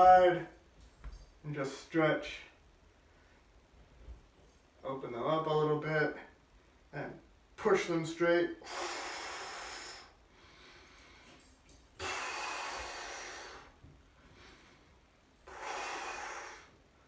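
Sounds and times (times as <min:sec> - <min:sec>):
man breathing heavily: 0:08.6 - 0:16.9.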